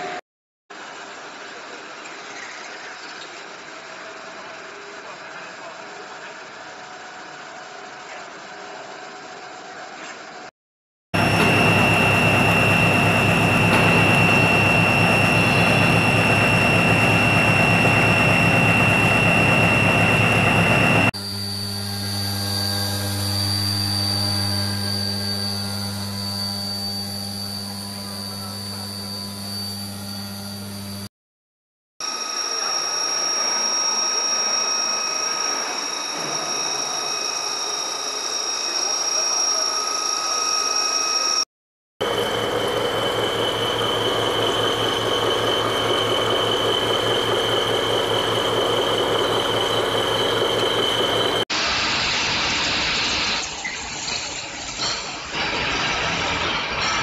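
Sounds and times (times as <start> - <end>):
drill spindle cutting steel: 11.2 - 31.1, 32.0 - 51.5.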